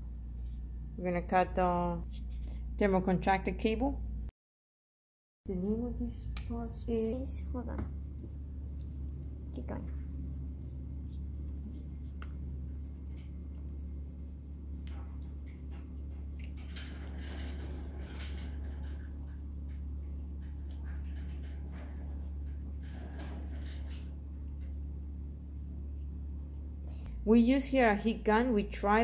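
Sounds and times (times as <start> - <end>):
steady low hum: 5.5 - 29.0.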